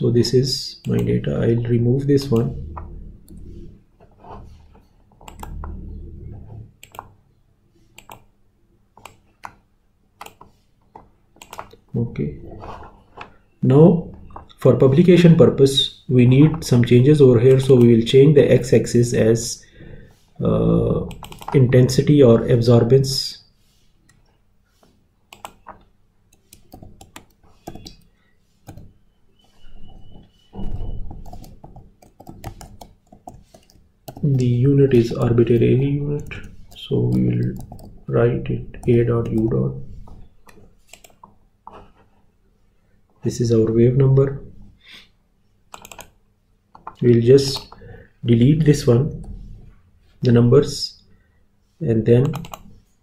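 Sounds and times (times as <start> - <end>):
computer mouse clicking: 2.2 - 5.9, 6.8 - 7.2, 7.9 - 8.3, 9.0 - 9.6, 10.2 - 11.8, 21.0 - 21.6, 24.0 - 29.0, 29.6 - 34.4, 36.2 - 38.0, 38.8 - 41.9, 45.7 - 47.8, 52.2 - 52.8
dull low rumble: 2.4 - 3.8.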